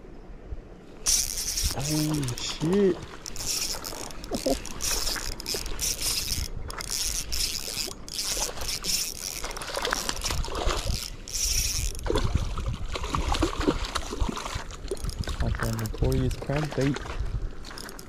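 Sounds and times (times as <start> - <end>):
fishing reel cranking: 1.0 - 12.1, 14.9 - 16.4, 17.7 - 18.0
fish splashing in water: 1.1 - 15.6.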